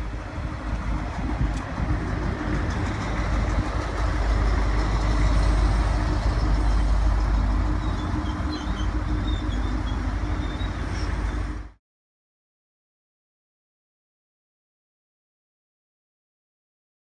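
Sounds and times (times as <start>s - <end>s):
diesel railcar engine drone: 0.0s - 11.8s
wheels rumbling on rail: 0.0s - 11.8s.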